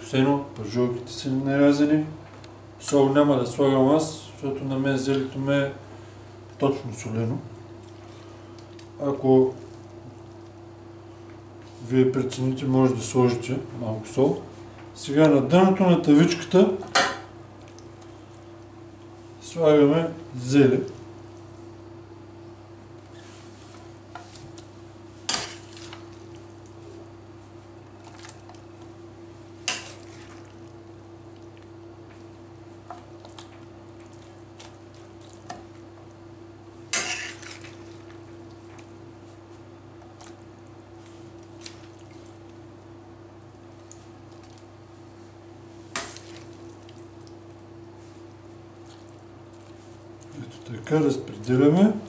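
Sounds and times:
steady low hum: 0.0s - 52.0s
metal spoon scraping frying pan: 37.0s - 37.4s.

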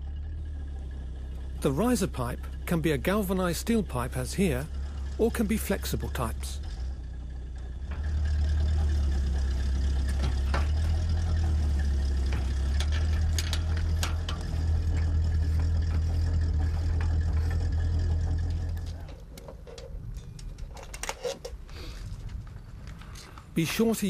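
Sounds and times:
engine idling: 0.0s - 24.0s
metal pipe clicks and knocks: 12.3s - 17.6s, 19.0s - 21.6s.

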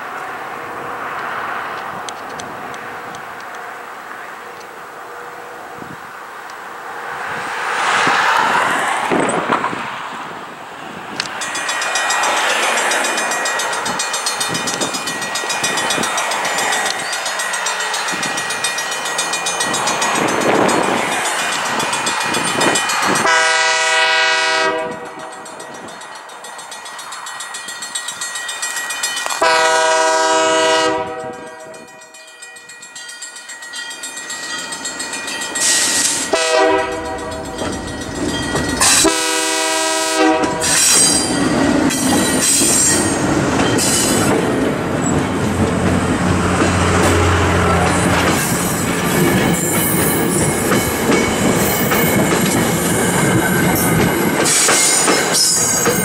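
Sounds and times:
train wheels clicking over rail joints: 11.1s - 23.4s, 24.9s - 29.6s, 31.2s - 39.2s, 40.4s - 56.0s
locomotive air horn: 23.2s - 25.3s, 29.4s - 32.0s, 36.3s - 37.4s, 38.8s - 41.2s.

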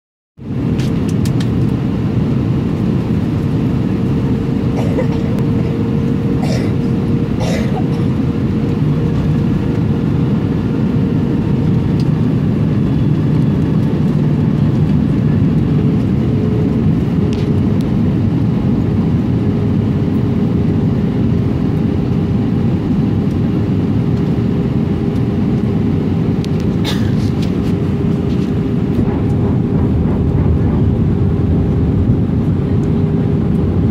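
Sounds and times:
airplane cabin roar: 0.4s - 33.9s
steady hum: 0.4s - 33.9s.

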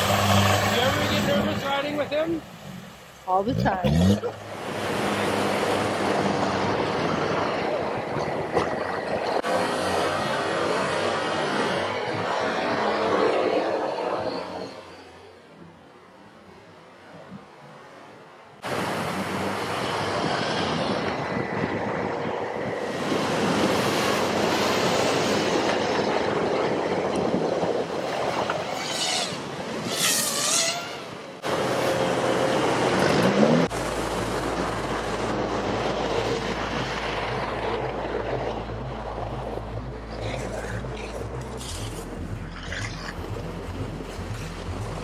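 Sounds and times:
diesel engines running: 0.0s - 15.9s, 31.4s - 45.0s
wind on microphone: 4.5s - 14.7s, 18.6s - 45.0s.

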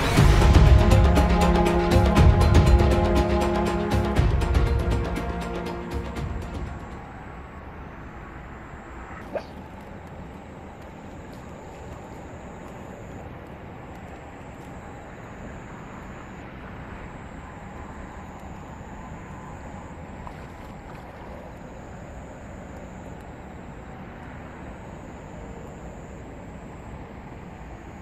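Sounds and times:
river rushing: 0.0s - 28.0s.

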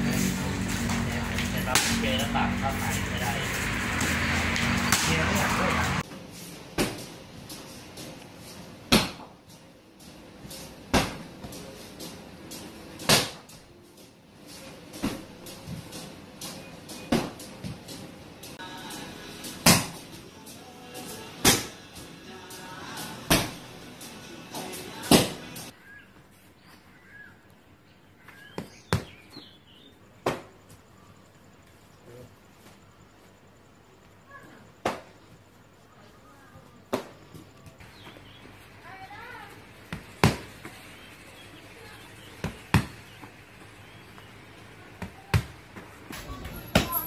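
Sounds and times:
kicks smacking a kick pad: 8.9s - 9.4s, 39.9s - 40.5s
small birds chirping: 25.7s - 30.1s, 37.6s - 45.4s.

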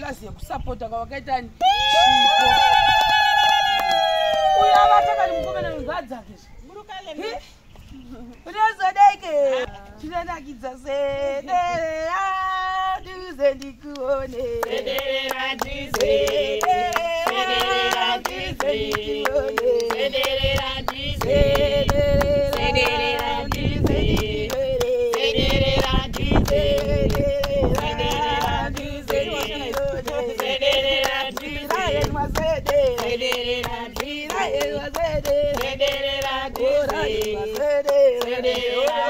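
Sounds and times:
women singing together: 8.7s - 39.0s
rhythmic hand-clapping: 13.4s - 39.0s.

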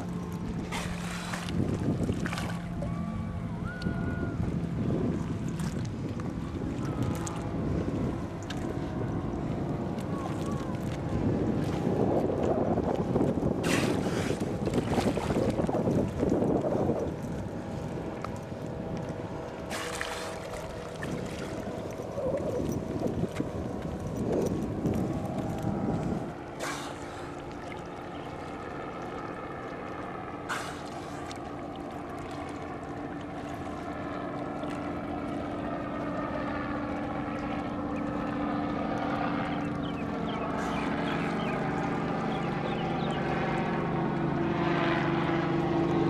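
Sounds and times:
motorboat engine droning: 0.0s - 46.0s
wind rumble on microphone: 0.0s - 46.0s
dolphin blowing puffs: 13.6s - 14.4s, 19.7s - 20.5s, 26.6s - 27.4s, 30.5s - 31.3s.

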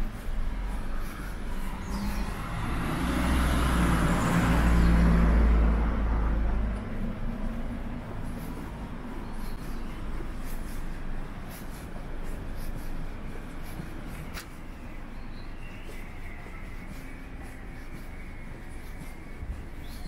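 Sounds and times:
low city rumble: 0.0s - 20.0s
footsteps scuffing: 6.9s - 20.0s.

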